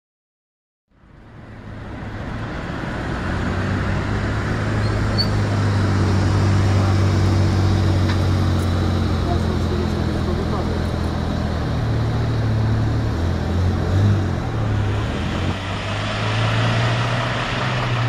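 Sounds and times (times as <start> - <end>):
vehicle engine idling: 5.4 - 13.6.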